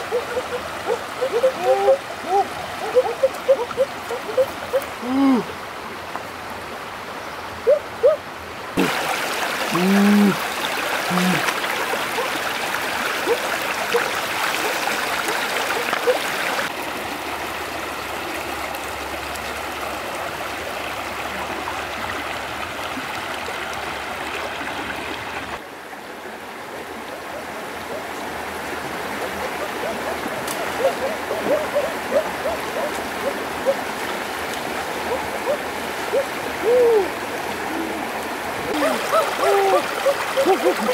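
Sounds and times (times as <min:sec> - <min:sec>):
stream gurgling over stones: 0:00.0 - 0:07.6, 0:08.6 - 0:40.9.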